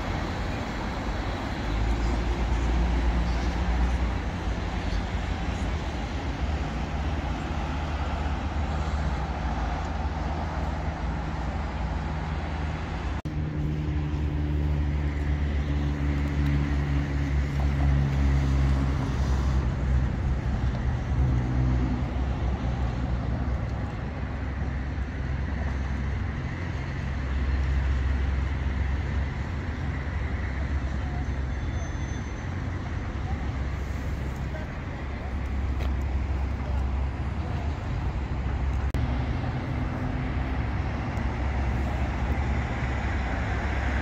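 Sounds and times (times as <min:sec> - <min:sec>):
cars passing: 0:00.0 - 0:44.0.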